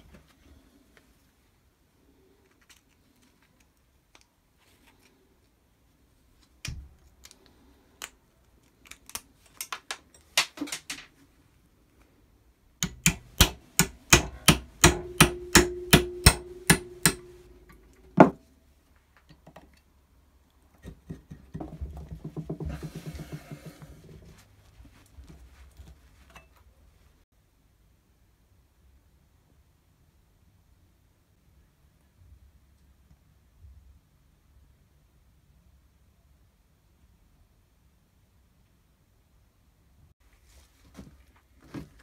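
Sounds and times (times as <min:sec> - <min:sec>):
hammer tapping on metal: 0:12.8 - 0:17.5.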